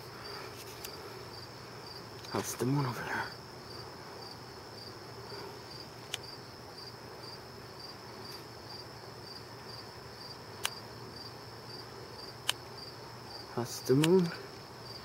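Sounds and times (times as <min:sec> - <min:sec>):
crickets chirping: 0:00.0 - 0:15.0
sharp clicks: 0:12.4 - 0:12.6, 0:13.9 - 0:14.4.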